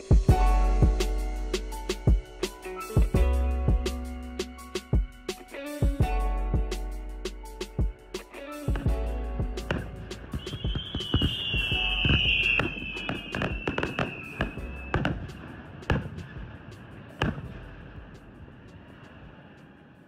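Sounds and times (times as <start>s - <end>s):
wavering high whine: 0.0s - 20.0s
fireworks bangs: 9.6s - 19.8s.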